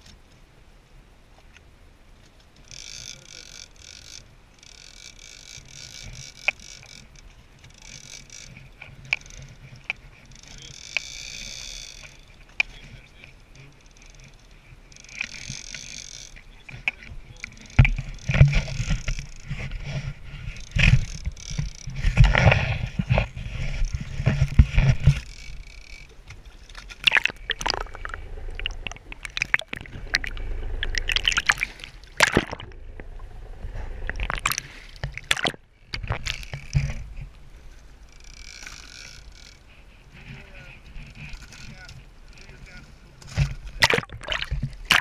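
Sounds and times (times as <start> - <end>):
sea water sloshing and splashing: 26.6 - 36.8, 43.3 - 45.0
low rumble: 27.0 - 36.3.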